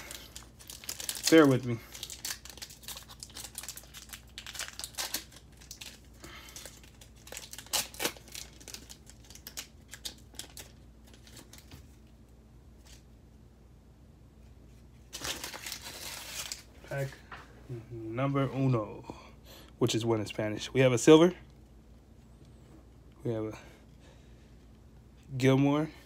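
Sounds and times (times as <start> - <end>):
cellophane crinkling and tearing: 0.0 - 12.1, 15.0 - 17.1.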